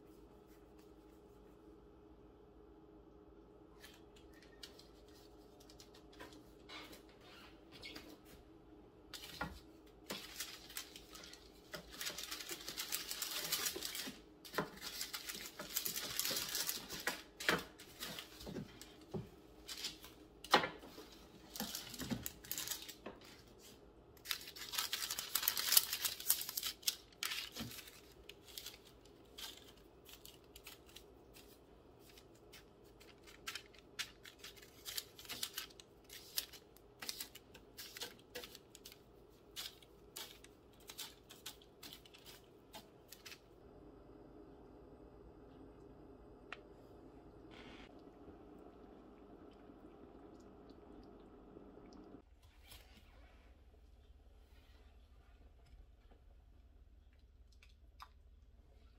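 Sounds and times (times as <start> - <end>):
parchment paper crinkling: 3.8 - 6.6, 9.1 - 20.2, 20.9 - 43.5.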